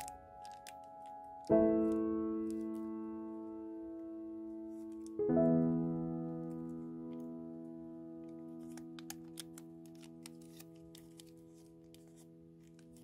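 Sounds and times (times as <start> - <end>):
paper folding clicks: 0.0 - 2.8, 8.6 - 13.0
piano chords: 0.0 - 13.0.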